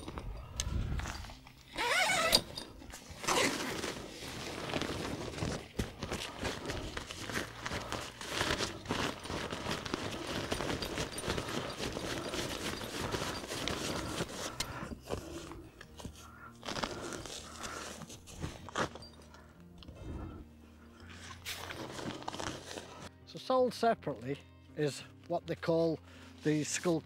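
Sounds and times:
nylon fabric rustling: 1.0 - 19.2, 21.1 - 23.1.

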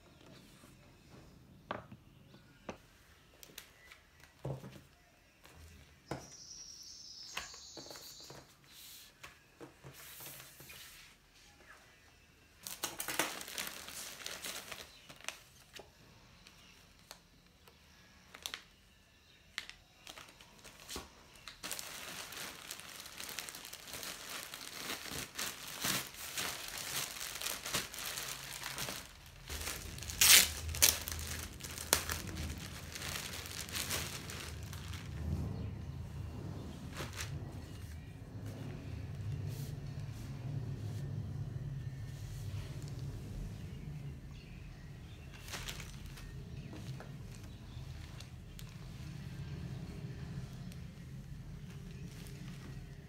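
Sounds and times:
plastic packaging crinkling: 12.6 - 15.7, 19.6 - 35.4, 45.2 - 48.8.

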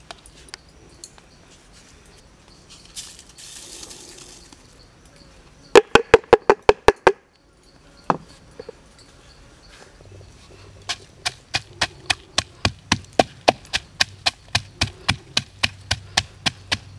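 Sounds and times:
shell knocking on wooden mortar: 5.8 - 7.2.

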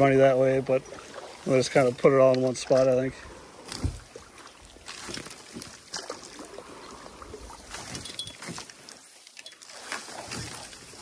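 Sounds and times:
sticks rustling through dry stalks: 3.5 - 11.0.

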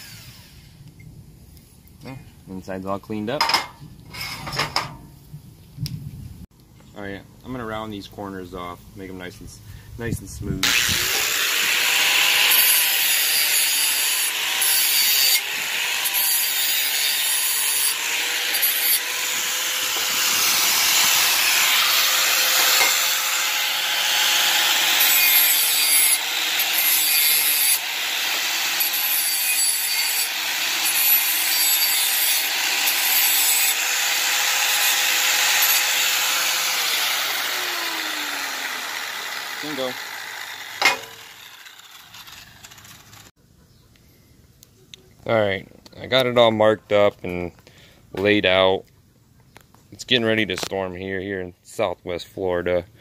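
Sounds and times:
angle grinder grinding metal: 0.0 - 0.7, 10.5 - 43.3.

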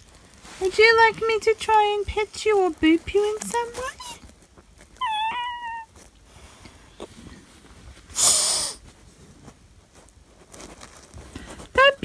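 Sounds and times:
child's high-pitched squeak: 5.0 - 5.9
child's breathy snort: 8.1 - 8.8.

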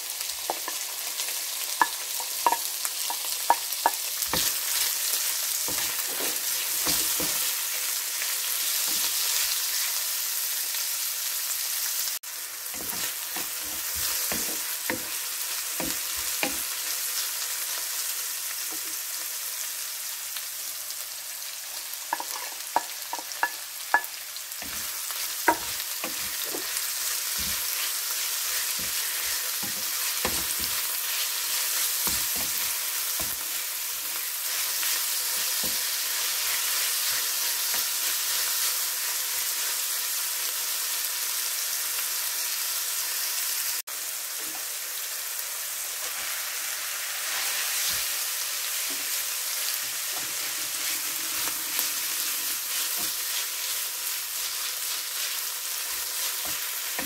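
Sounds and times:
food sizzling in a frying pan: 0.0 - 57.0
spatula scraping a pan: 12.7 - 15.2, 22.2 - 38.4, 46.0 - 57.0.

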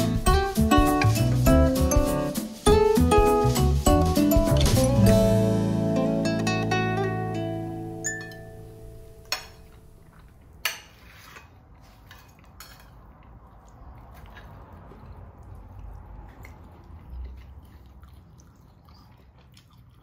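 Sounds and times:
cutlery tapping and scraping plate: 10.6 - 13.0
cutlery clinking on plate: 10.6 - 13.1.

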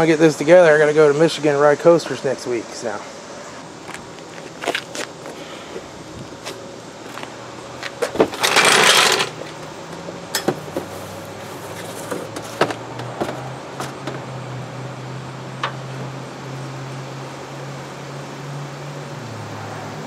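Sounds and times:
cardboard box rustling and scraping: 10.6 - 14.2.

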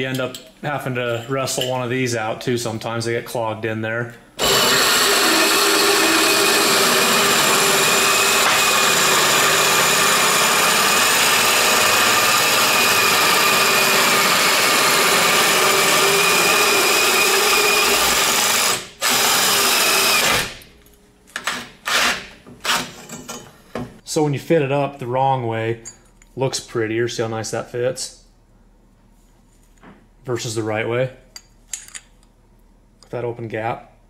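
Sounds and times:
hole saw cutting metal tube: 4.4 - 20.6.

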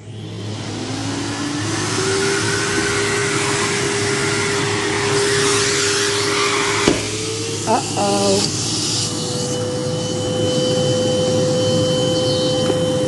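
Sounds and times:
vacuum cleaner motor running: 0.0 - 13.0
sharp knock: 6.8 - 7.1.

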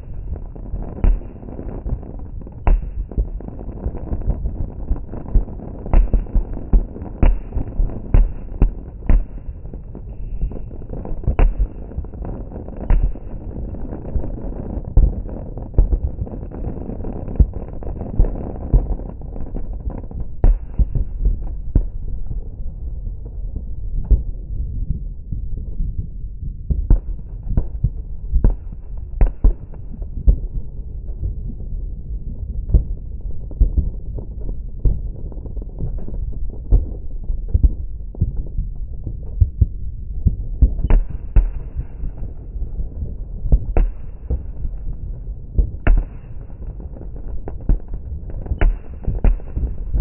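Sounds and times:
loud firework booms: 0.0 - 22.5, 32.6 - 50.0
distant fireworks rumble: 0.0 - 50.0.

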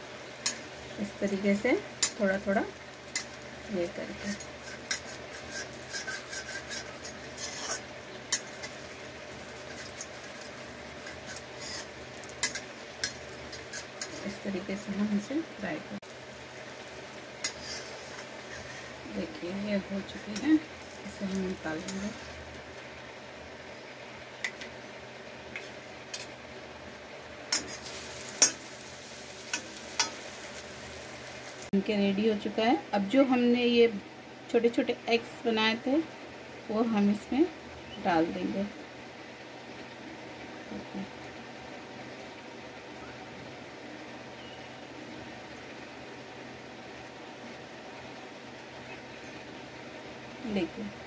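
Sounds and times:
food sizzling in hot oil: 0.0 - 35.9
metal spatula scraping a pan: 4.0 - 14.4, 17.4 - 19.0, 21.3 - 22.4, 27.5 - 30.5.

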